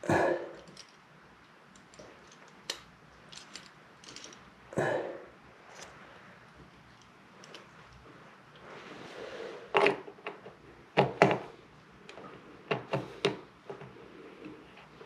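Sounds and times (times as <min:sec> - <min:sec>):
small metal parts clicking: 0:00.6 - 0:04.5.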